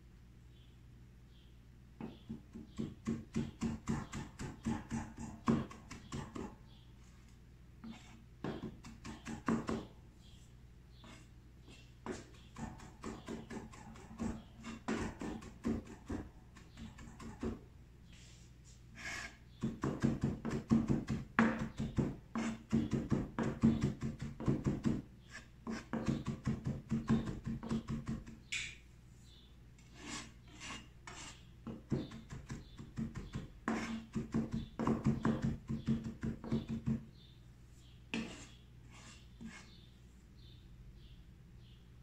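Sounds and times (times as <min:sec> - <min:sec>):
knife chopping herbs on board: 0:02.0 - 0:06.6, 0:07.8 - 0:09.9, 0:11.0 - 0:17.6, 0:19.6 - 0:25.0, 0:25.7 - 0:28.6, 0:30.0 - 0:37.1.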